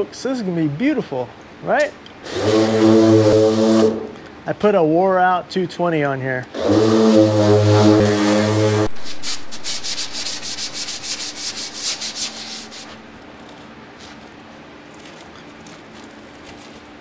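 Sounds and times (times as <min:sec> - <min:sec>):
sandpaper scuffing painted panel: 0:06.6 - 0:13.1.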